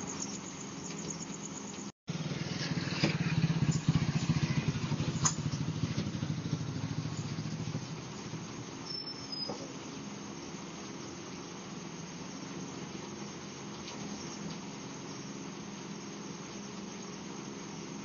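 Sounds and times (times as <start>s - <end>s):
scooter engine riding off: 2.1s - 9.8s.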